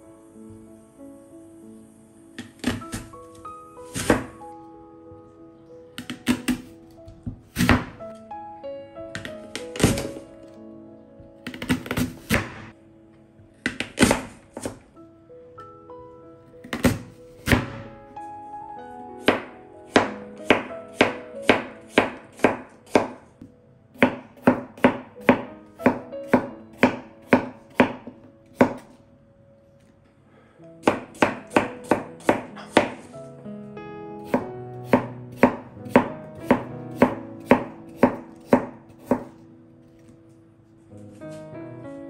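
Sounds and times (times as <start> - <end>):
knife chopping on cutting board: 3.9 - 4.3, 6.0 - 8.0, 19.3 - 23.2, 24.0 - 28.9, 30.8 - 33.1, 34.3 - 39.4.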